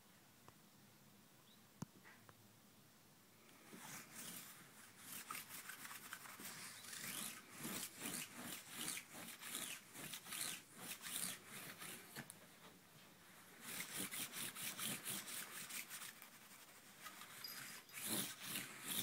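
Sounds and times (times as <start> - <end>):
lint roller rasping on bedspread: 3.6 - 12.4, 13.2 - 19.0.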